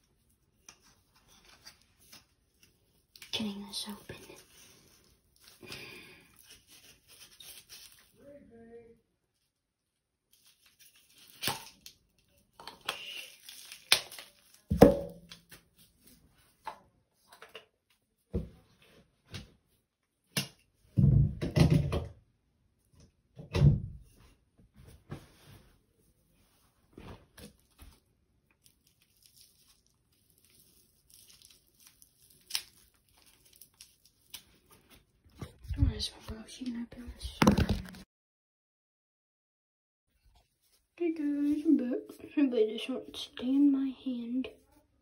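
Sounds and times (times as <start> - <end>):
plastic wrapping crinkling: 0.6 - 8.2, 10.3 - 16.1, 27.4 - 36.0.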